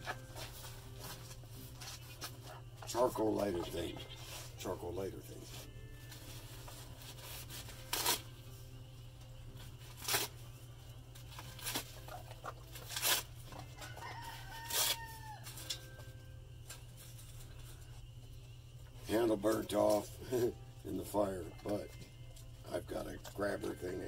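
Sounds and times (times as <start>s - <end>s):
rooster crowing: 13.6s - 15.7s.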